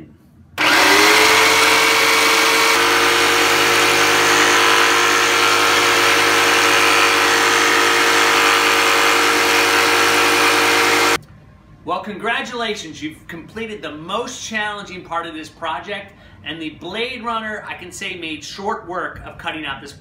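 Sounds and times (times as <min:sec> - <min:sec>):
saw blade buzzing in wood: 0:00.6 - 0:11.2
saw motor hum: 0:00.6 - 0:11.2.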